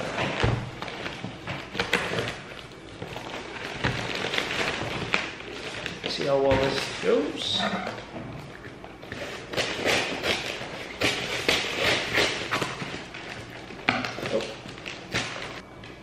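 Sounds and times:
scissors snipping tape and cardboard: 9.5s - 12.9s.

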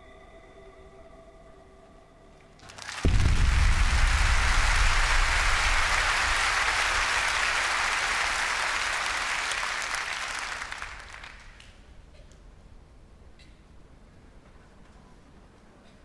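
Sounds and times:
audience applauding: 2.6s - 11.8s
low rumble: 3.0s - 8.4s.

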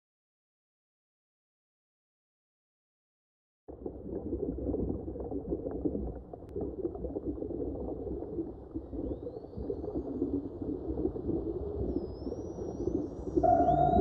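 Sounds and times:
gliding high whistles: 13.4s - 14.0s.

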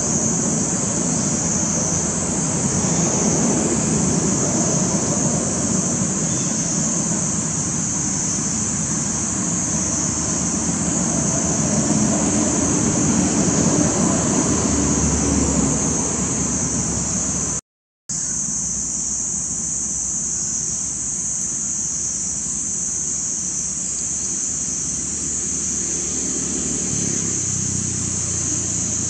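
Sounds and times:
distant traffic rumble: 0.0s - 17.6s, 23.4s - 29.0s
high-pitched hiss: 0.0s - 29.0s.

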